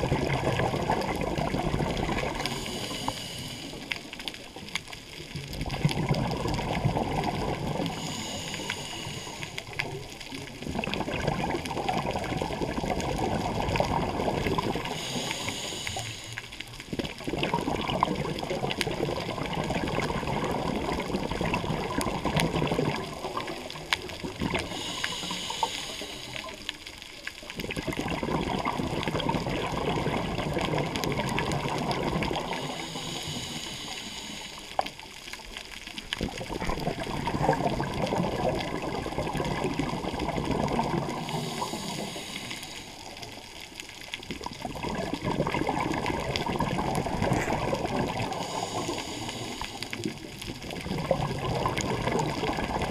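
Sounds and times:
bubbling exhales underwater: 0:00.0 - 0:26.7, 0:27.4 - 0:52.9
hissing regulator inhales: 0:02.3 - 0:04.1, 0:07.9 - 0:09.8, 0:14.9 - 0:16.6, 0:24.6 - 0:26.6, 0:32.5 - 0:35.0, 0:41.2 - 0:43.2, 0:48.3 - 0:50.0.

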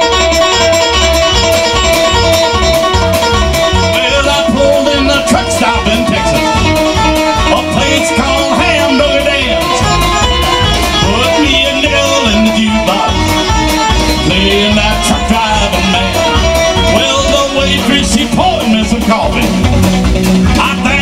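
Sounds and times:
country rock band playing: 0:00.0 - 0:21.0
man singing into a microphone: 0:03.7 - 0:06.6, 0:07.4 - 0:10.0, 0:11.0 - 0:13.3, 0:14.2 - 0:19.5, 0:20.5 - 0:21.0.

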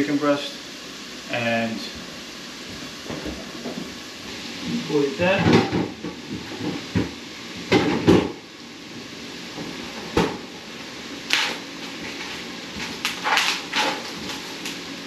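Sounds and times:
plastic packaging rustling: 0:11.9 - 0:14.8.

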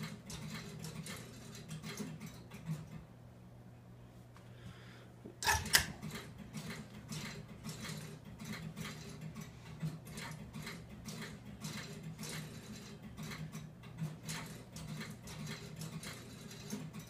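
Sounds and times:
low steady hum: 0:00.0 - 0:12.2
relay clicks: 0:05.4 - 0:06.3.

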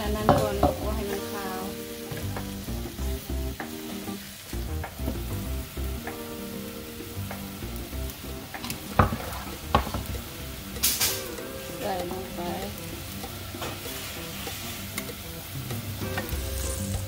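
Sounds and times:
background music: 0:00.0 - 0:17.0
meat sizzling in a wok: 0:00.0 - 0:17.0
metal spoon clanking on wok: 0:00.2 - 0:01.3.

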